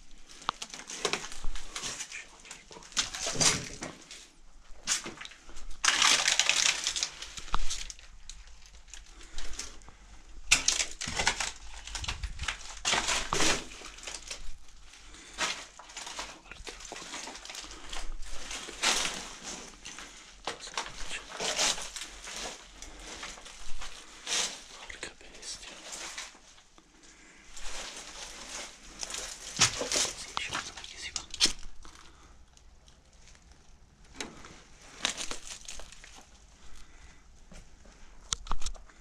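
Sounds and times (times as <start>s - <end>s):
footsteps crunching on rubble: 0.3s - 4.1s, 10.6s - 24.7s, 27.5s - 32.0s.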